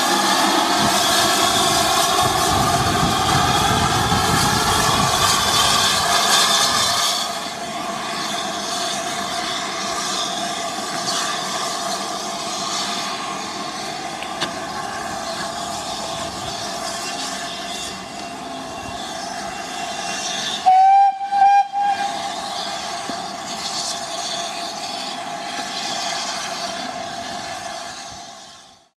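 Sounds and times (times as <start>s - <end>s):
steam hissing: 0.0s - 28.9s
steam locomotive whistle blasts: 20.6s - 22.5s.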